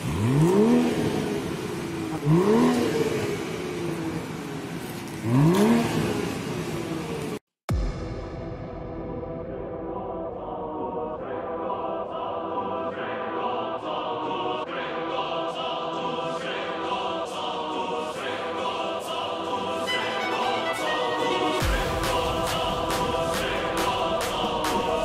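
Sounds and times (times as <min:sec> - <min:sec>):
sustained vocal-like chords: 0:07.7 - 0:25.0
music beat: 0:15.9 - 0:25.0.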